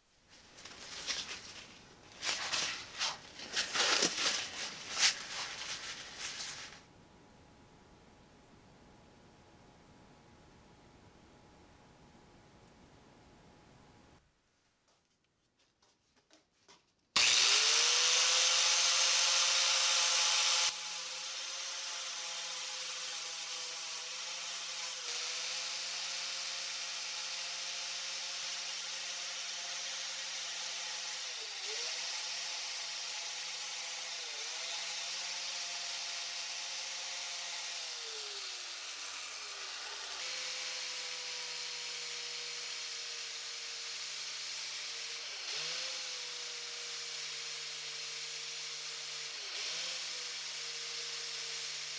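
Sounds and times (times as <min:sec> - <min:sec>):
angle grinder sanding steel: 0:01.0 - 0:06.8, 0:17.2 - 0:51.9.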